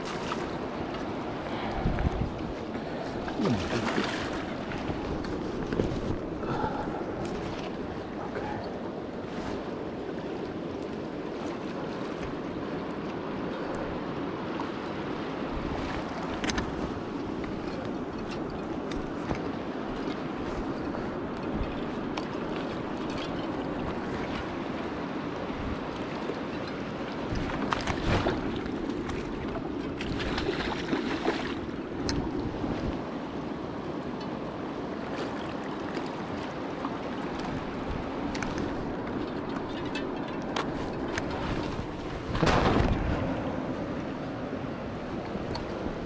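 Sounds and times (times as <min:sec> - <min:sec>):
river rushing over stones: 0:00.0 - 0:05.7.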